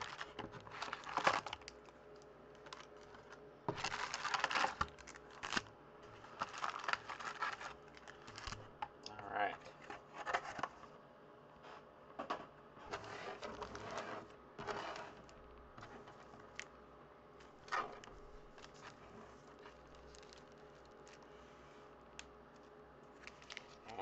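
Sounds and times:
foil packs crinkling: 0:00.0 - 0:08.7, 0:13.0 - 0:16.7, 0:17.4 - 0:21.4, 0:22.1 - 0:24.0
foil packs rustling: 0:00.0 - 0:08.7, 0:12.9 - 0:16.7, 0:17.4 - 0:21.4, 0:22.5 - 0:23.9.

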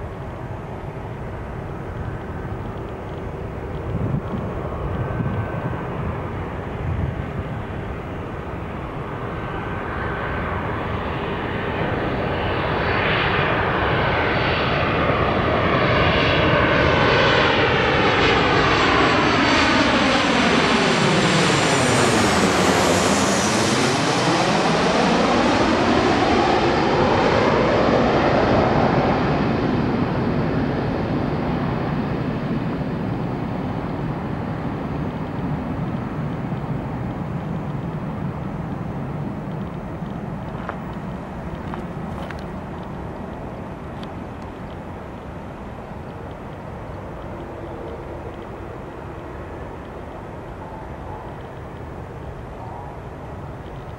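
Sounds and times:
jet plane passing overhead: 0:00.0 - 0:53.9.

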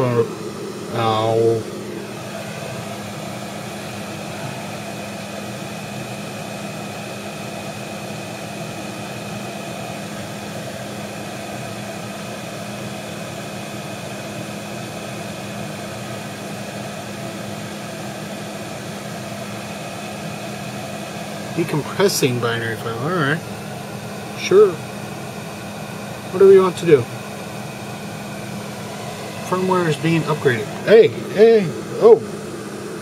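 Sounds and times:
faint high whine: 0:00.0 - 0:05.6, 0:27.8 - 0:33.0
machine hum and hiss: 0:00.0 - 0:33.0.

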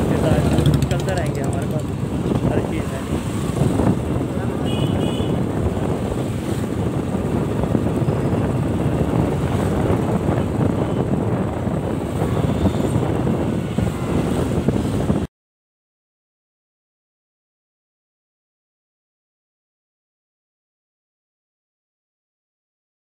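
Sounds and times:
motorcycle running: 0:00.0 - 0:15.2
wind buffeting microphone: 0:00.0 - 0:15.3.

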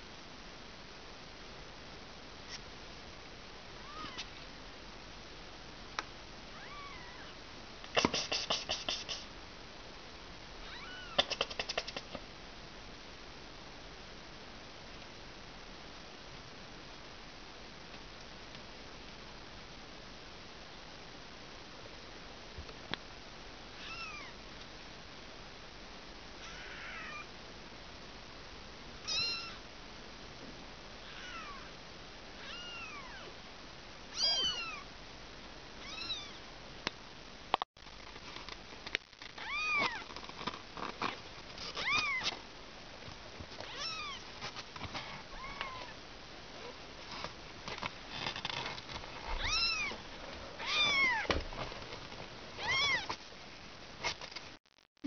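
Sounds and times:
kitten mewing: 0:03.8 - 0:04.3, 0:06.5 - 0:07.4, 0:10.6 - 0:12.2, 0:26.4 - 0:27.3, 0:29.1 - 0:29.6, 0:31.0 - 0:31.7, 0:32.4 - 0:33.3, 0:43.7 - 0:44.2, 0:49.4 - 0:50.0, 0:50.6 - 0:51.3, 0:52.6 - 0:53.1.

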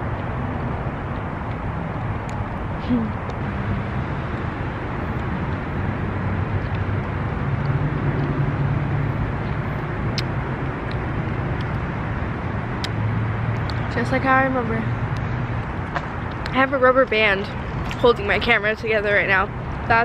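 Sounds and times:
low engine hum: 0:00.0 - 0:20.0
road traffic noise: 0:00.0 - 0:20.0.

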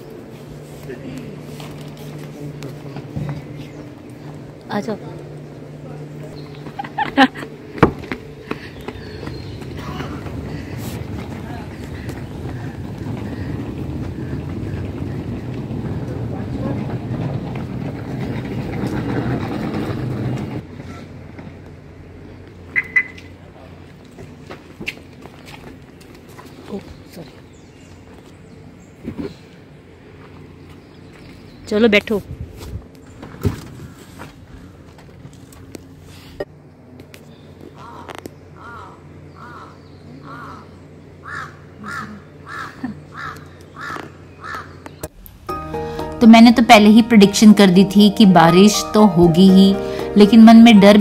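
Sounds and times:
suitcase wheels rumbling over concrete: 0:07.8 - 0:21.6
crow cawing: 0:37.8 - 0:44.8
low hum: 0:45.0 - 0:51.0.

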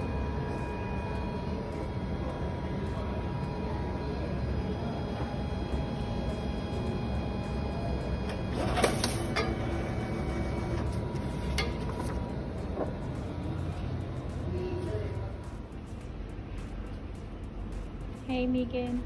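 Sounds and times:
faint high steady tones: 0:00.0 - 0:08.6
machine hum: 0:00.0 - 0:18.1.

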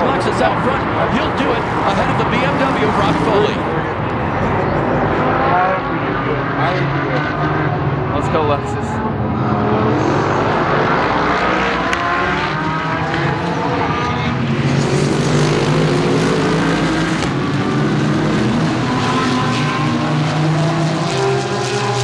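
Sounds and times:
race cars passing: 0:00.0 - 0:22.0.

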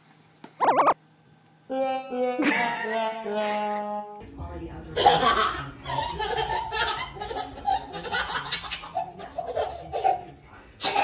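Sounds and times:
baby laughing: 0:05.0 - 0:11.0.

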